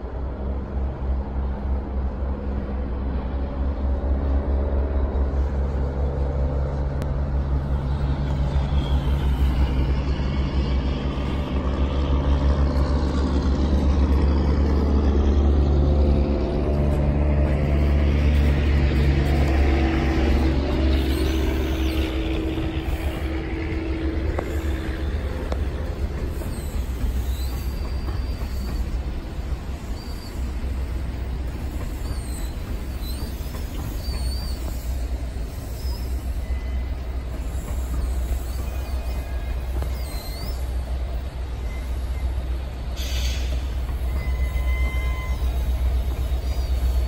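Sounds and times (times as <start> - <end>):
locomotive engine droning: 0.0 - 47.0
passenger cars rolling on rails: 0.0 - 47.0.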